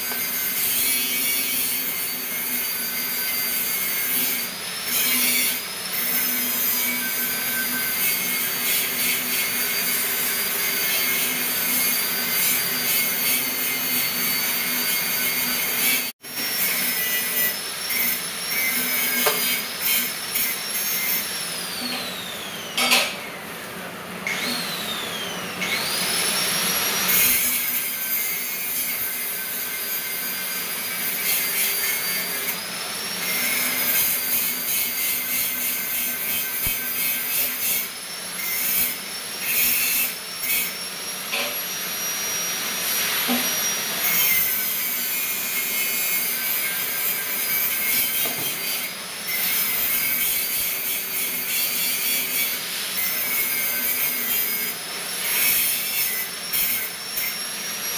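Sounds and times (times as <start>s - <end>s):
power tool whining and grinding: 0.0s - 57.9s.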